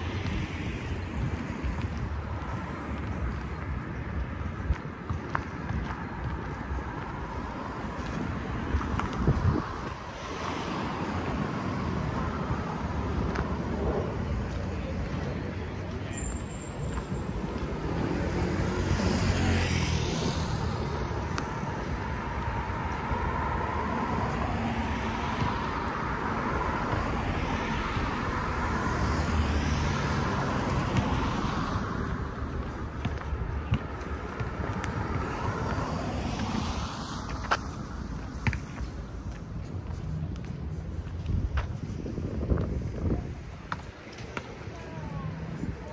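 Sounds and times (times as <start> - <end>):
road traffic passing: 0.0 - 45.9.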